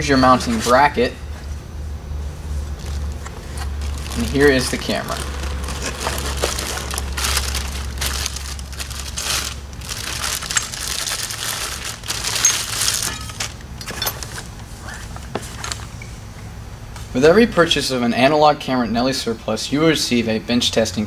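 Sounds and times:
plastic bag crinkling: 0:02.7 - 0:14.6.

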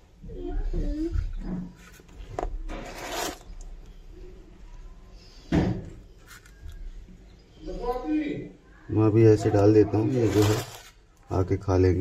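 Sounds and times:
pellets rustling rattle: 0:10.1 - 0:11.0.

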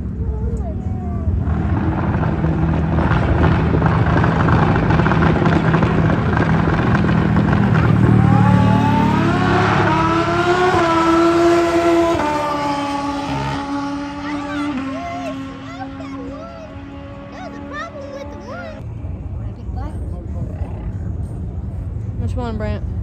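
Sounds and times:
low engine rumble: 0:00.0 - 0:23.0
racing engine revving through gears: 0:01.4 - 0:18.8.

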